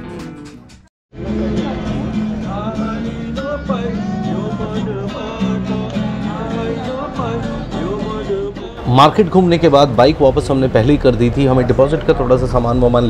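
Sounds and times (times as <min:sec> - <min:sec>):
acoustic guitar strumming: 0:00.0 - 0:09.7
man singing: 0:01.2 - 0:09.3.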